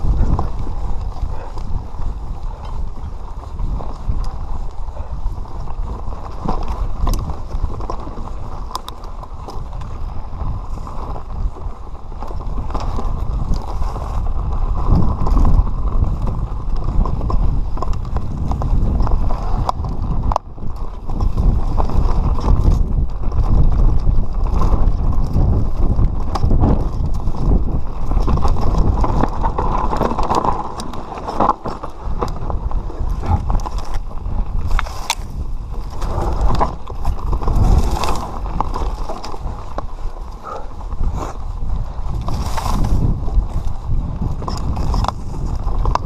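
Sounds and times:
bike knocking and rattling: 0.0 - 46.0
tyres rumbling on dirt: 0.0 - 46.0
wind rushing over microphone: 0.0 - 46.0.

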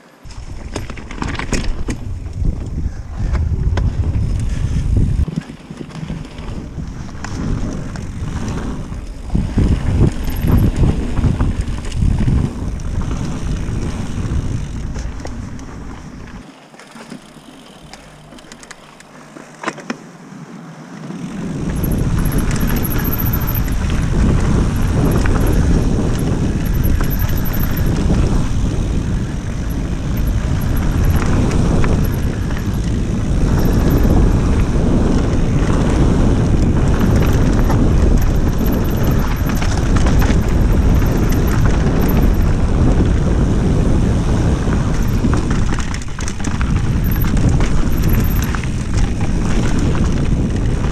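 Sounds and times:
wind on microphone: 0.0 - 16.4, 21.2 - 50.9
bike tyres rumbling over rocks: 0.1 - 19.7, 21.0 - 50.9.

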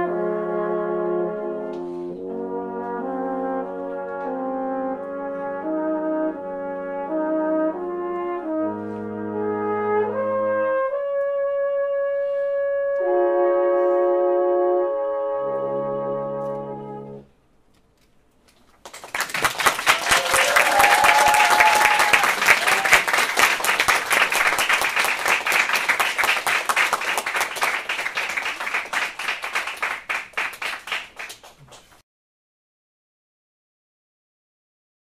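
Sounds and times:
audience applause: 18.8 - 32.0.

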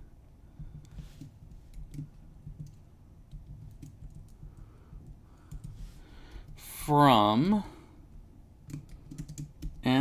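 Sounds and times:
faint keyboard typing: 0.5 - 6.6, 8.6 - 10.0.

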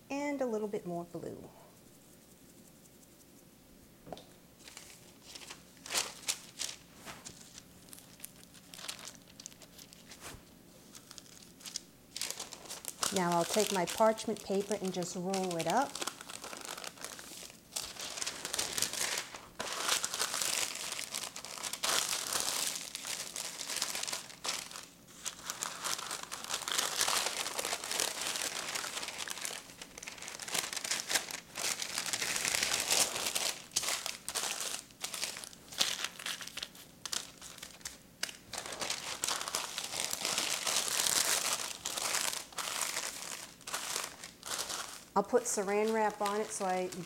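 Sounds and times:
parchment paper crinkling: 4.6 - 47.0.

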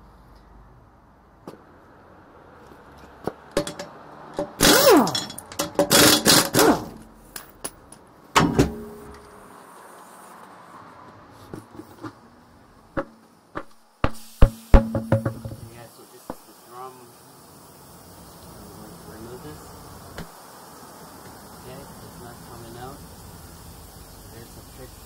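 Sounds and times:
impact wrench hammering: 3.6 - 7.8, 13.0 - 16.4
knocks: 13.0 - 15.8.

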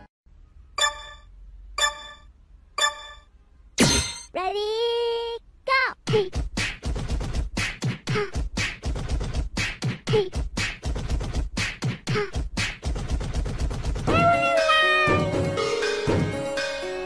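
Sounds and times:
person beatboxing: 7.6 - 8.8, 9.6 - 10.8, 11.8 - 12.8.

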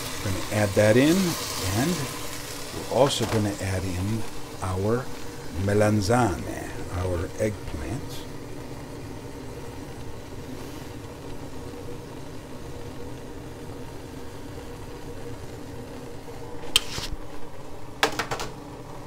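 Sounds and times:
steady background hum: 0.0 - 19.0
eggplant sliding into sauce pan: 16.6 - 17.2.

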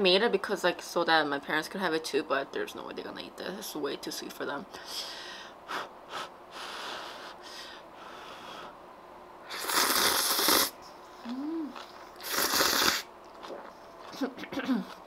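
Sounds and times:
loud noodle slurps: 9.5 - 10.7, 12.2 - 13.7
soft mouth sounds: 9.5 - 15.0.

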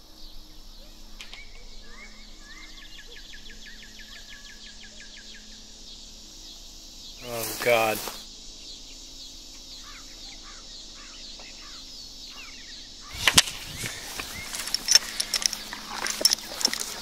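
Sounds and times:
faint bird chirps: 0.0 - 17.0
steady outdoor hiss: 0.0 - 17.0
paper crackling and rustling: 13.1 - 17.0.

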